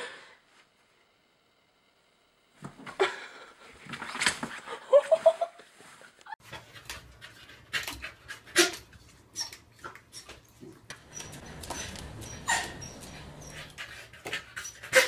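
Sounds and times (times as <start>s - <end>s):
short rising squeak: 11.1s - 13.8s
dog panting: 11.1s - 15.0s.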